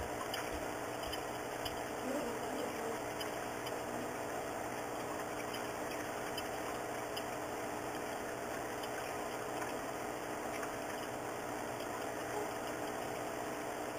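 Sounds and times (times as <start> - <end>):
faint ticks: 0.0 - 3.9, 4.7 - 13.9
steady hum and hiss: 0.0 - 13.9.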